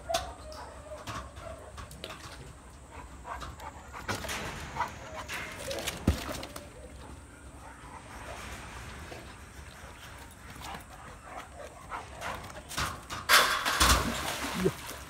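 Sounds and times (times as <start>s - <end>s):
water sloshing: 12.6s - 15.0s
dog splashing into water: 13.4s - 15.0s.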